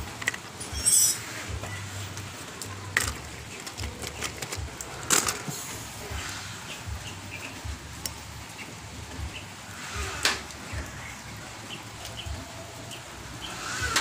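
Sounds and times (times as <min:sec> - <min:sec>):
toy truck knocking and rattling: 0:02.6 - 0:05.6.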